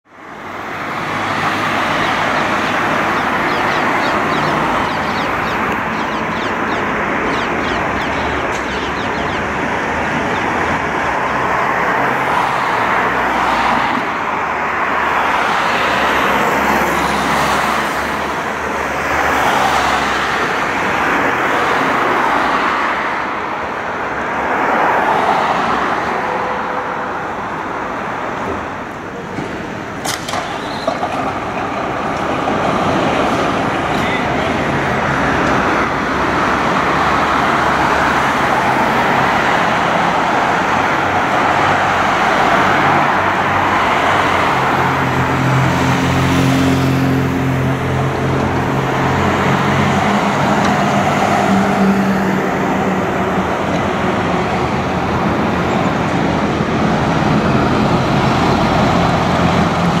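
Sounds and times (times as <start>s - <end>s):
cars passing on street: 0.0s - 60.0s
heavy vehicle engine droning: 0.3s - 12.2s.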